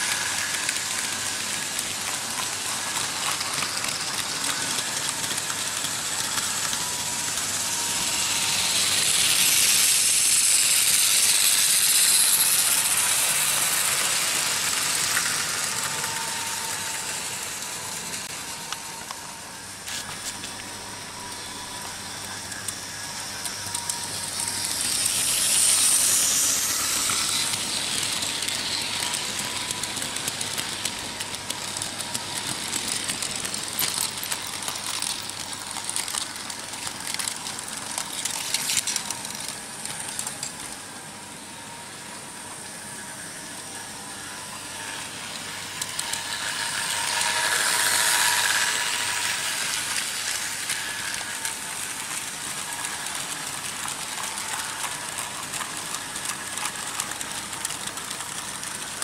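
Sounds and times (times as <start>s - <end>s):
model train wheels clattering: 0.0s - 40.9s, 44.2s - 59.0s
wheels clicking over rail joints: 19.8s - 40.8s, 45.2s - 59.0s.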